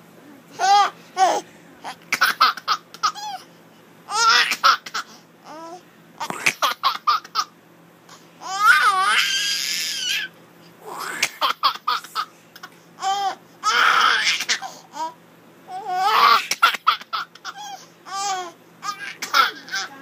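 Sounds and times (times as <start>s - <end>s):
baby giggling: 0.6s - 3.5s, 4.1s - 5.1s, 6.2s - 7.5s, 11.1s - 14.7s, 15.7s - 20.0s.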